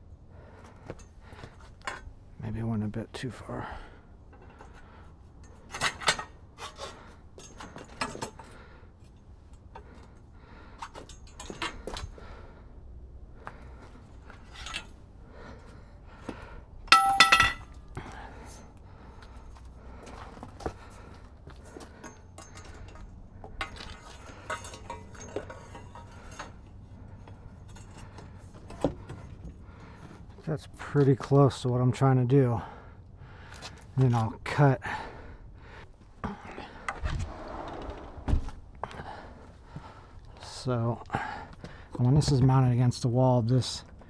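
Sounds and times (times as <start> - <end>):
metallic clinks and knocks: 16.9 - 17.8.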